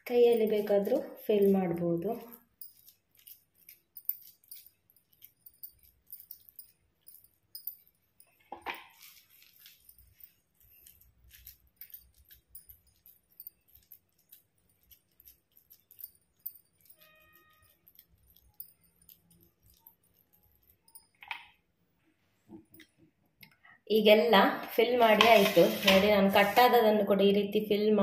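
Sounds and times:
bangles jingling: 0.0 - 21.6
fingers scraping steel bowl: 2.2 - 7.8, 8.9 - 20.8, 25.0 - 26.8.

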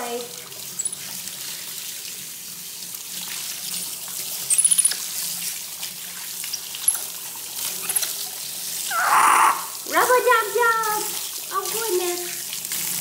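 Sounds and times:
faucet running into a tub: 0.0 - 13.0
monkey squeaking: 4.5 - 5.0.

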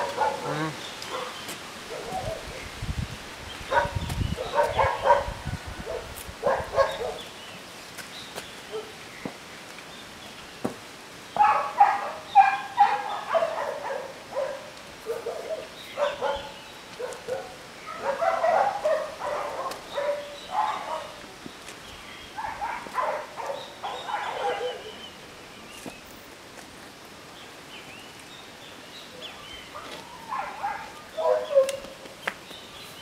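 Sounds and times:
dogs barking: 0.0 - 2.5, 3.7 - 7.3, 8.7 - 9.0, 11.4 - 21.2, 22.4 - 25.0, 29.7 - 32.0.

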